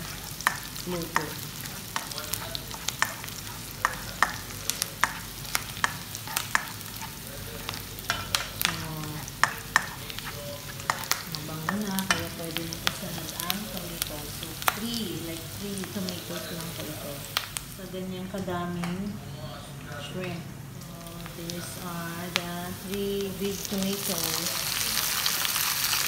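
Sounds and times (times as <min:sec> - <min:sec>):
spatula scraping a pan: 0:00.0 - 0:12.4
onion sizzling in hot oil: 0:00.0 - 0:19.0, 0:20.8 - 0:26.0.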